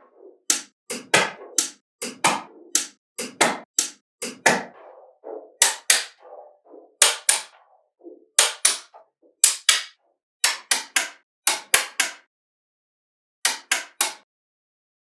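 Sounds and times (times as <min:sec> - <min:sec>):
magnetic balls clicking together: 0:00.5 - 0:04.5.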